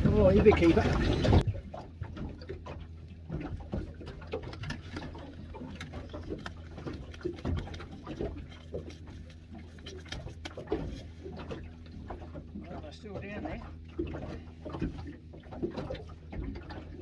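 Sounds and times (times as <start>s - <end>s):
fish being handled clicks and rustles: 2.2s - 12.7s.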